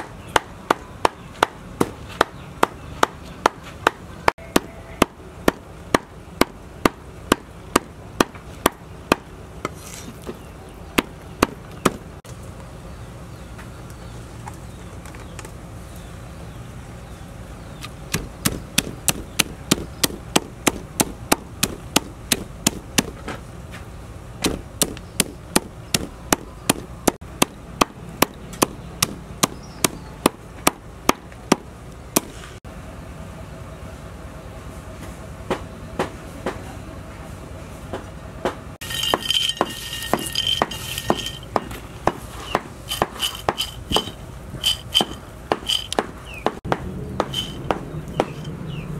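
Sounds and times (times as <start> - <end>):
cleaver chopping on wooden board: 18.1 - 23.4, 24.4 - 31.6, 45.0 - 48.4
rustling clatter: 38.8 - 46.0, 47.2 - 47.7.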